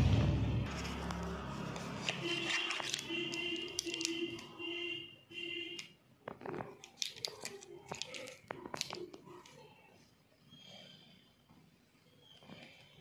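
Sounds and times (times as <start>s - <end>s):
plastic tubes clicking: 2.1s - 4.6s, 5.7s - 9.7s.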